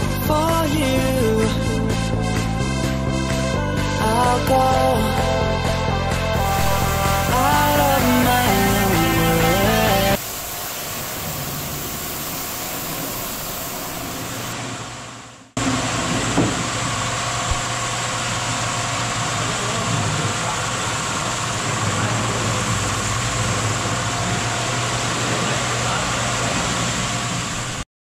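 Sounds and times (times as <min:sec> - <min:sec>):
pressure washer motor hum: 0:00.0 - 0:27.8
water jet spraying: 0:06.4 - 0:14.7, 0:15.8 - 0:27.8.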